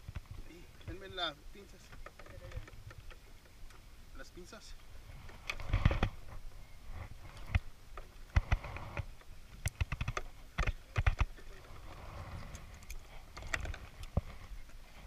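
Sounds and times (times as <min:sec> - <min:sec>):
sharp clicks and light knocks: 0:01.7 - 0:03.9, 0:07.3 - 0:11.7, 0:12.5 - 0:14.8.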